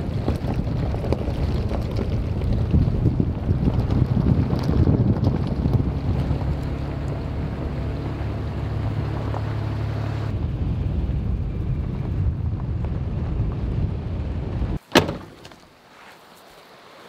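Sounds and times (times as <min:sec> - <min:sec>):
wind buffeting microphone: 0:00.0 - 0:14.8
vehicle driving on gravel: 0:00.0 - 0:17.0
sharp thump: 0:14.9 - 0:15.6.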